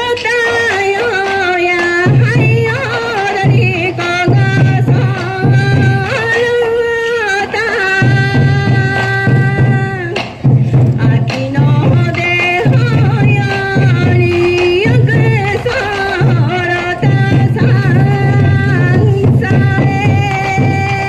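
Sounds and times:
sharp drum strikes: 8.0 - 21.0.

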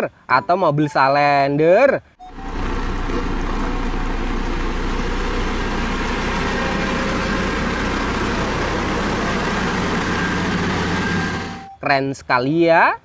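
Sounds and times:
diesel engine humming: 2.2 - 11.8.

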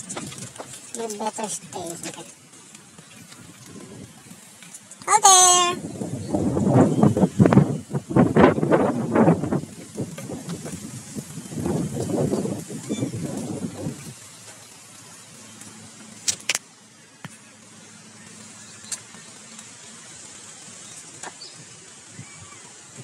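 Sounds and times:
wind buffeting microphone: 0.0 - 16.5
outdoor background noise: 0.0 - 23.0.

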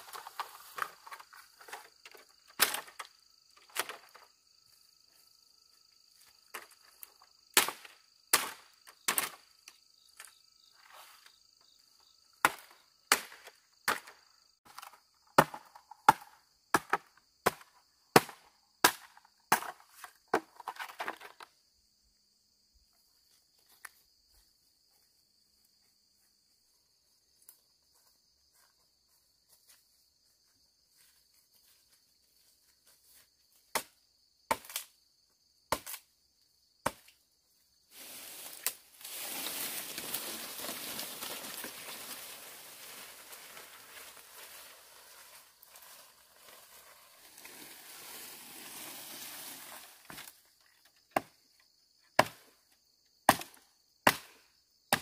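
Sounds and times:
high insect buzz: 37.6 - 50.8.

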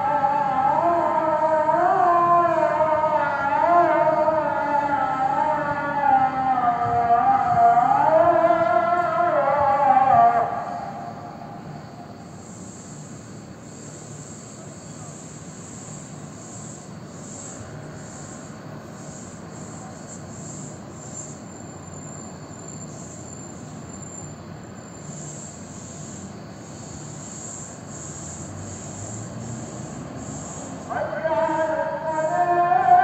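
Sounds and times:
outdoor ambience hiss and rumble: 0.0 - 33.0
insect chirring: 10.6 - 33.0.

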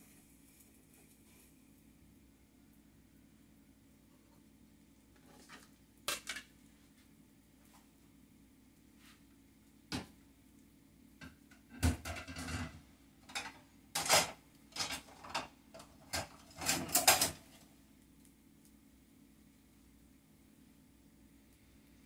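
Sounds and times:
low steady hum: 0.0 - 22.0
kitchen utensils clattering: 11.2 - 17.6.

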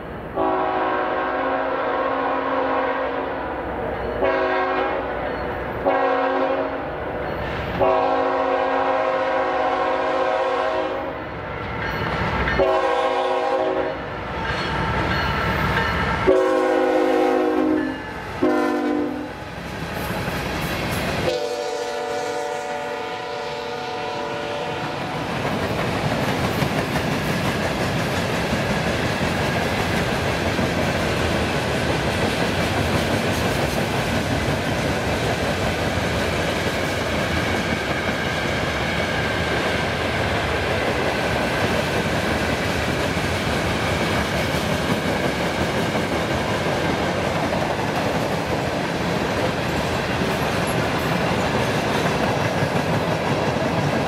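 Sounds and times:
locomotive air horn blasts: 0.4 - 3.4, 4.2 - 5.1, 5.8 - 6.8, 7.8 - 11.2, 12.6 - 14.0, 16.2 - 19.3, 21.2 - 25.0
train wheels clickety-clack: 7.2 - 10.9, 11.5 - 54.0.

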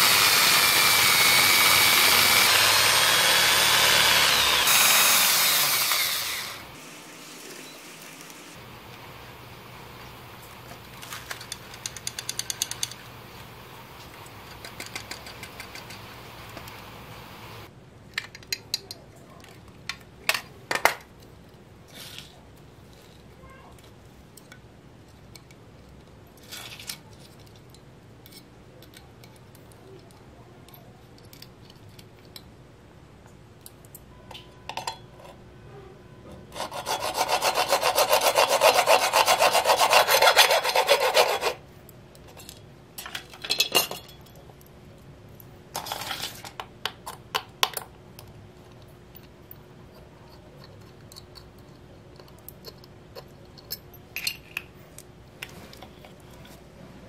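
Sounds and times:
hacksaw cutting plastic: 0.0 - 8.4, 36.5 - 41.6.

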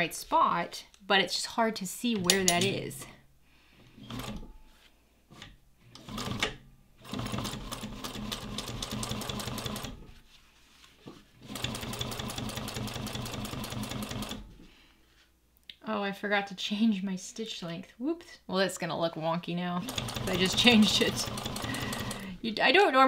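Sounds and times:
sewing machine stitching leather: 5.9 - 10.1, 11.4 - 14.5, 19.8 - 22.3.

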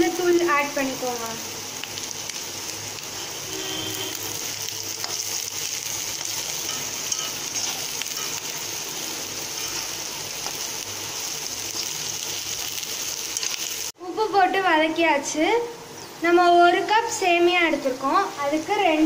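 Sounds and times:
vegetables sizzling in hot oil: 0.0 - 19.0
metal spoon stirring: 4.9 - 8.6, 9.5 - 10.0.

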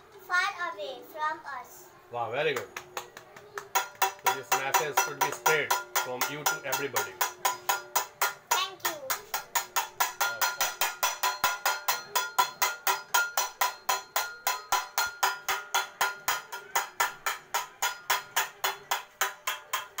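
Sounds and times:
small metal object ringing: 9.4 - 20.0.

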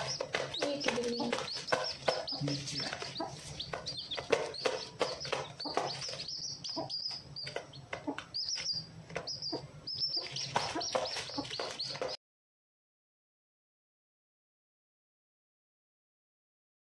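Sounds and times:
chicks peeping: 0.0 - 12.2
hen clucking: 0.0 - 12.2.

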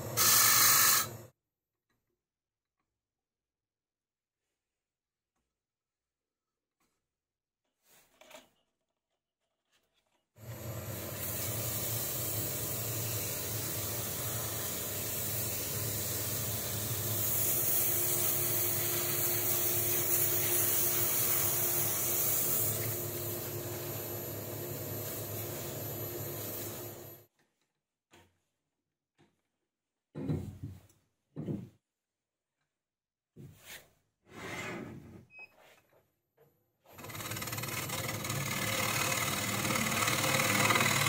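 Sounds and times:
wood lathe running: 36.9 - 41.0.

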